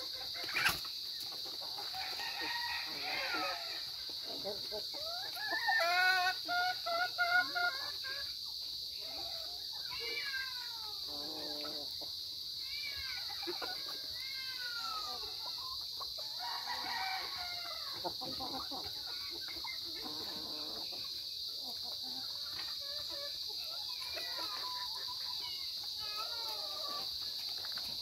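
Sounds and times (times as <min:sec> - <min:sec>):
chickens clucking: 0:00.0 - 0:10.2, 0:11.0 - 0:28.0
rooster crowing: 0:02.0 - 0:04.0, 0:16.3 - 0:18.0.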